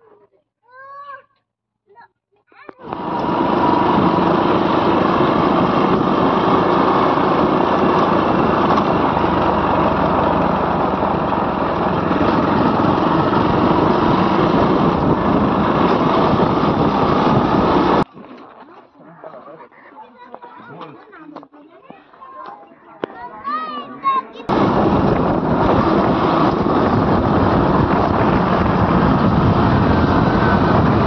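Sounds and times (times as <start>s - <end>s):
motorcycle engine running: 2.8s - 18.0s, 24.5s - 31.0s.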